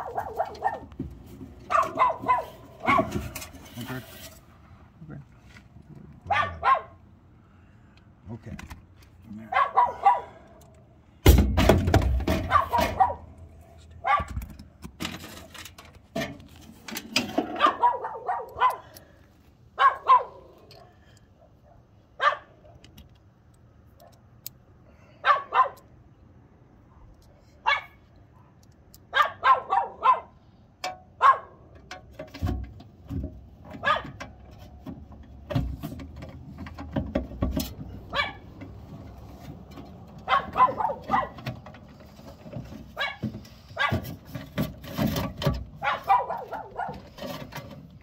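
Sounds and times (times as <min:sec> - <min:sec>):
dog barking: 0:00.0 - 0:00.9, 0:01.7 - 0:03.2, 0:06.3 - 0:07.0, 0:09.5 - 0:10.4, 0:12.4 - 0:13.3, 0:14.0 - 0:14.4, 0:17.5 - 0:18.9, 0:19.8 - 0:22.8, 0:25.2 - 0:25.8, 0:27.6 - 0:30.4, 0:31.2 - 0:31.6, 0:33.8 - 0:34.2, 0:38.1 - 0:38.4, 0:40.3 - 0:41.4, 0:43.0 - 0:43.2, 0:43.8 - 0:44.1, 0:45.8 - 0:47.1.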